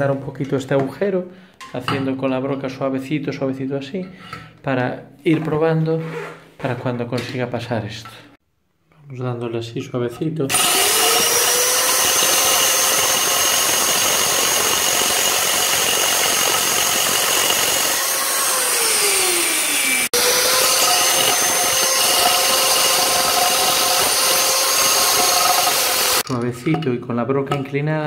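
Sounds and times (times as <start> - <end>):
electric drill drilling ceramic: 10.5 - 26.3.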